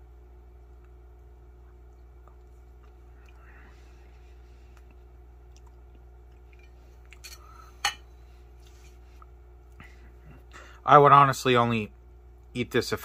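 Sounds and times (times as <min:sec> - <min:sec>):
faint eating sounds: 0:00.5 - 0:10.8.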